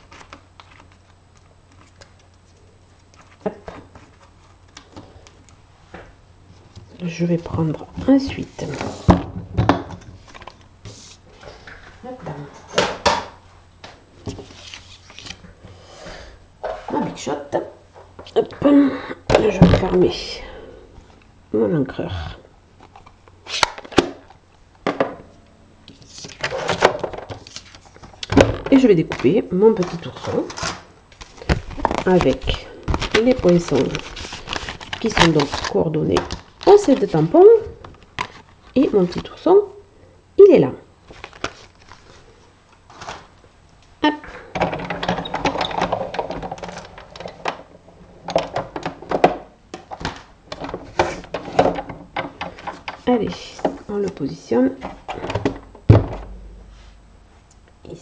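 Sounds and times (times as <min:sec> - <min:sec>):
craft supplies clattering: 0:44.5 - 0:53.1.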